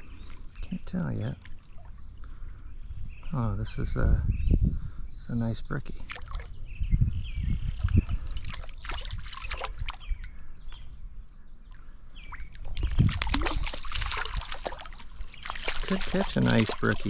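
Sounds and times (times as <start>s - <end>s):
stream water splashing: 0.0s - 2.2s, 8.3s - 10.2s, 12.2s - 17.0s.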